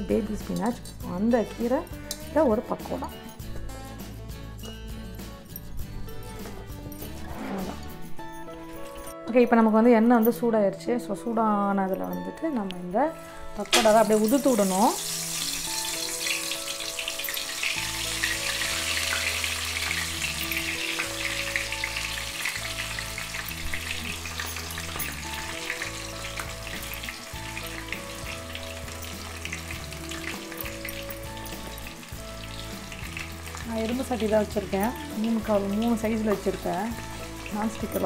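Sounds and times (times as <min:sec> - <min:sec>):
soft background music: 0:00.0 - 0:38.0
batter sizzling in hot oil: 0:13.6 - 0:38.0.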